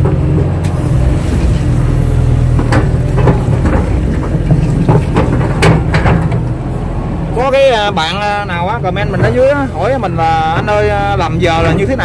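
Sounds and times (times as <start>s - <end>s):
excavator diesel engine running: 0.0s - 12.0s
short knocks: 2.5s - 6.5s.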